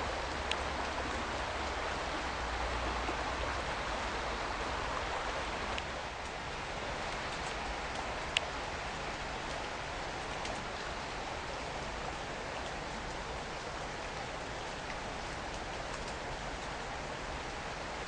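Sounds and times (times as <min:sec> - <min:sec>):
faint raindrop ticks: 0:00.0 - 0:01.8, 0:05.7 - 0:18.0.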